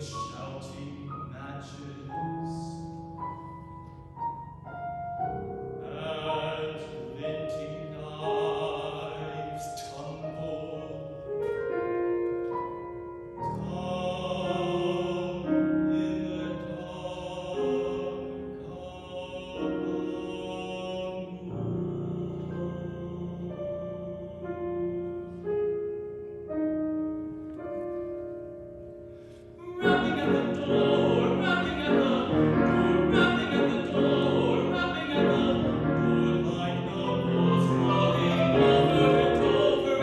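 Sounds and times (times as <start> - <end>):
piano accompaniment: 0.0 - 40.0
tenor singing operatically: 29.6 - 40.0.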